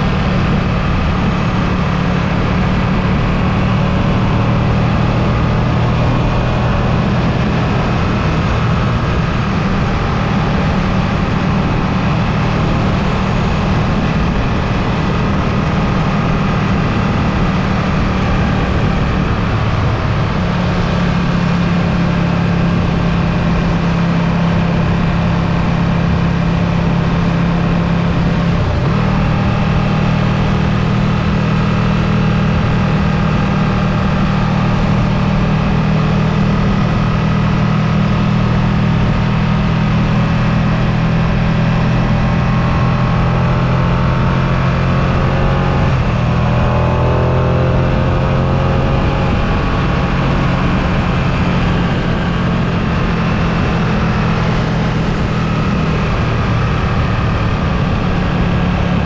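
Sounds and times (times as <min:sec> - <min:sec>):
motorcycle engine running: 0:00.0 - 0:59.0
wind and road noise: 0:00.0 - 0:59.0.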